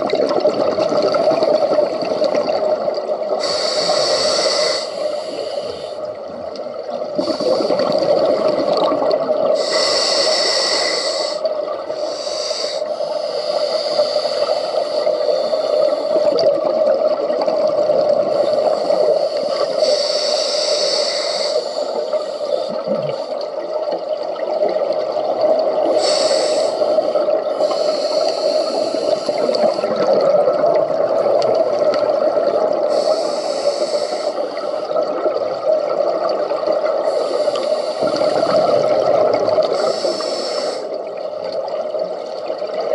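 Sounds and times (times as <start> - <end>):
steady underwater hum: 0.0 - 42.9
scuba regulator breathing hiss: 3.4 - 6.2, 7.2 - 8.0, 9.6 - 16.5, 18.2 - 23.5, 25.8 - 30.0, 32.8 - 35.0, 37.0 - 41.1.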